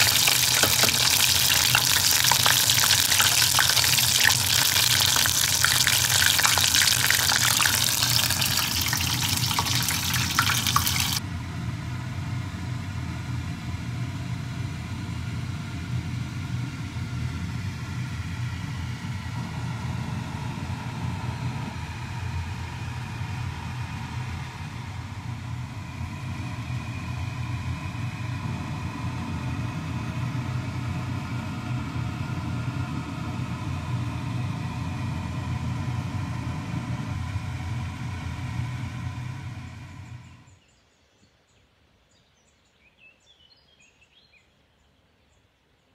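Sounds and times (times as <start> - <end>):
deep-frying oil sizzling: 0.0 - 11.2.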